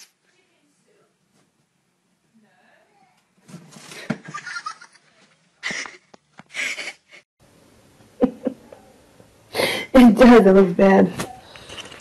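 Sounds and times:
person laughing: 0:04.2 - 0:07.2, 0:08.2 - 0:08.7.

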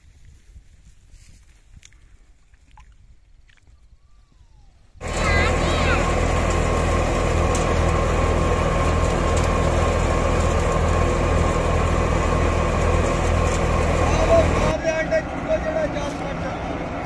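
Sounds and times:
thresher drum and pulleys spinning: 0:05.0 - 0:17.0
tractor engine running under load: 0:05.0 - 0:17.0.

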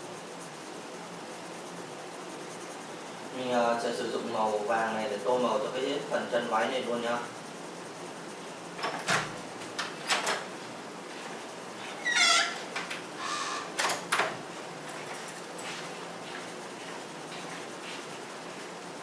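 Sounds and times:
pencil scratching on paper: 0:00.0 - 0:07.9, 0:15.6 - 0:18.8.

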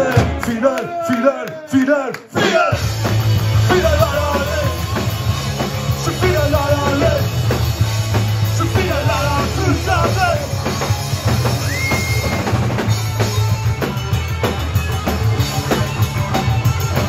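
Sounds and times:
drum kit: 0:00.0 - 0:00.8, 0:02.2 - 0:17.0
man singing: 0:00.0 - 0:05.2, 0:05.9 - 0:07.6, 0:08.4 - 0:10.8
loud electric guitar: 0:02.4 - 0:17.0.

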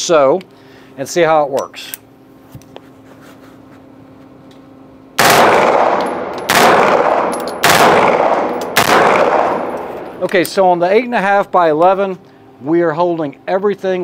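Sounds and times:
submachine gun bursts: 0:05.2 - 0:09.8.

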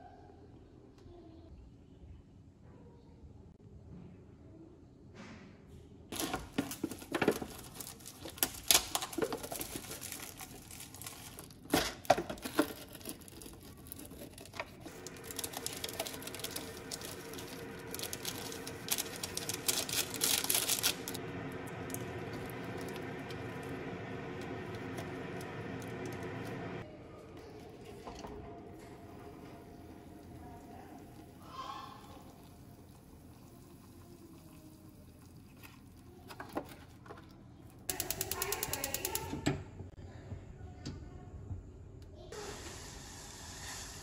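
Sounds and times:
foil and plastic crinkling: 0:06.2 - 0:21.2
steady hum: 0:06.2 - 0:33.2.

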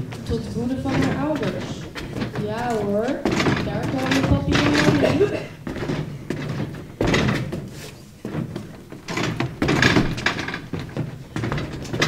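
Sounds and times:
footfalls thudding on a stage: 0:00.0 - 0:12.0.

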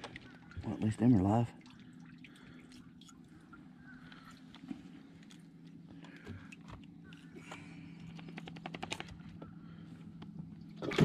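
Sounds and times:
handling clicks and crinkles: 0:00.0 - 0:00.6
low steady hum: 0:00.0 - 0:11.0.

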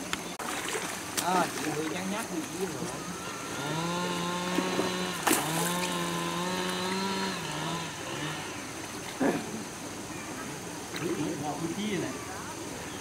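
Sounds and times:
small engine running: 0:02.4 - 0:09.9.

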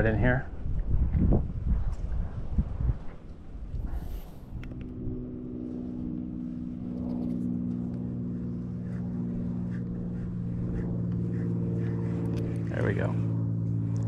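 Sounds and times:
small boat motor humming: 0:03.5 - 0:14.0.

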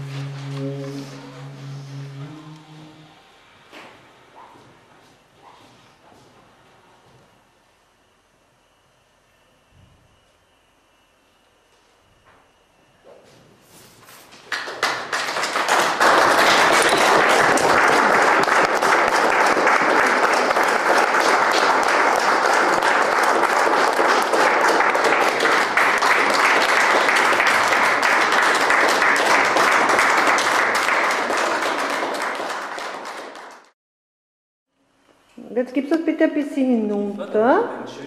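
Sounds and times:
crowd applauding: 0:14.4 - 0:33.8.

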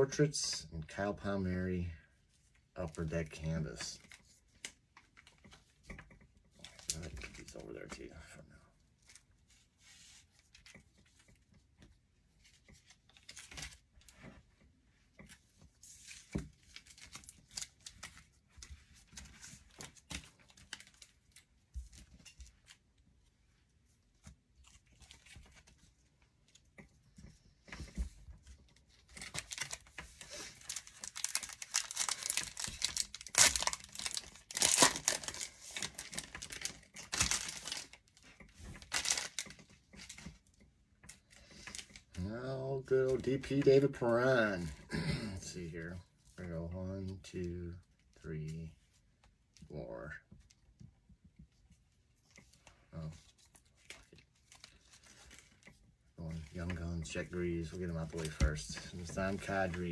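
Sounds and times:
wrapper torn and crinkled: 0:29.1 - 0:38.0, 0:38.8 - 0:39.6.

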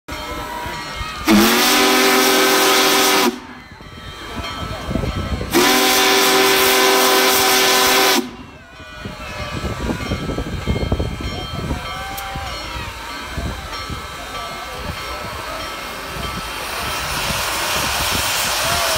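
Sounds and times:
steam locomotive chime whistle: 0:00.2 - 0:18.9
steam hissing: 0:01.2 - 0:03.6, 0:05.4 - 0:08.4, 0:14.0 - 0:18.9.

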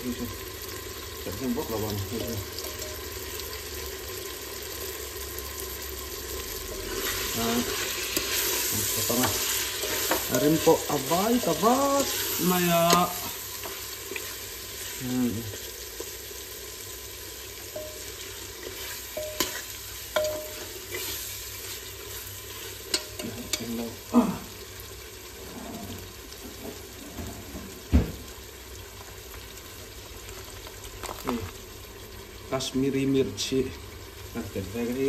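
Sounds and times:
meat sizzling in oil: 0:00.0 - 0:35.0
ladle knocking and scraping pot: 0:17.8 - 0:21.2.

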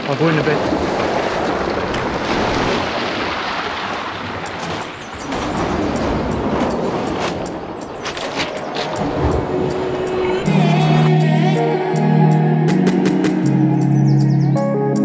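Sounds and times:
sea water sloshing and splashing: 0:00.0 - 0:10.5.

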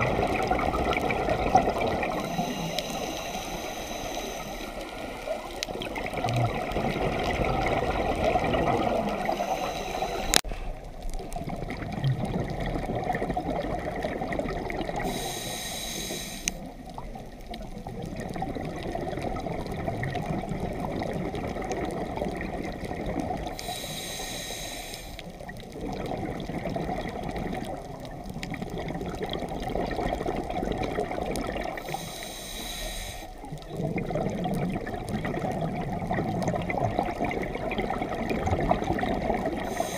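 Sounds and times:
bubbling exhalations: 0:00.0 - 0:03.5, 0:04.9 - 0:09.6, 0:25.7 - 0:32.0, 0:33.6 - 0:39.9
hissing regulator inhales: 0:02.2 - 0:05.5, 0:09.2 - 0:10.8, 0:15.0 - 0:16.7, 0:23.6 - 0:25.3, 0:31.8 - 0:33.4, 0:39.6 - 0:39.9.

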